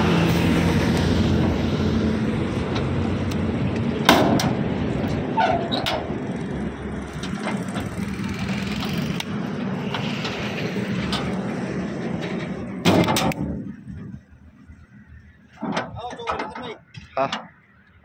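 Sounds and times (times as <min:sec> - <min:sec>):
vehicle engine running: 0:06.0 - 0:15.3.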